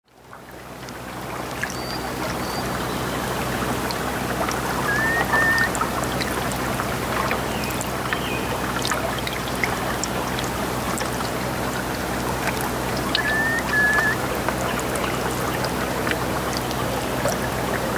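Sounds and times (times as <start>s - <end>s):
water lapping against rocks: 0.3s - 17.9s
whistled bird calls: 1.7s - 3.1s, 4.8s - 5.8s, 13.1s - 14.3s.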